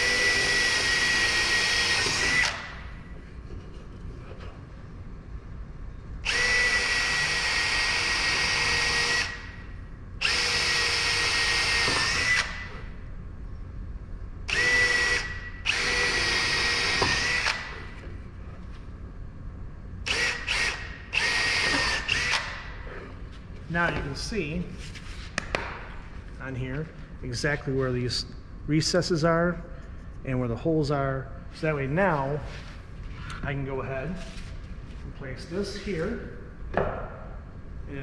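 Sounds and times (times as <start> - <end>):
cordless drill drilling wood: 0.0 - 2.7, 6.2 - 9.4, 10.2 - 12.7, 14.5 - 17.8, 20.1 - 22.5.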